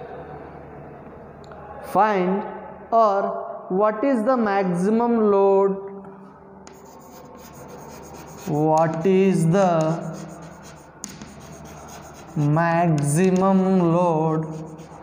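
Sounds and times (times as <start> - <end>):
chalk scratching on blackboard: 6.7 - 13.4, 14.3 - 15.0
chalk tapping on board: 6.7 - 13.6, 14.3 - 15.0.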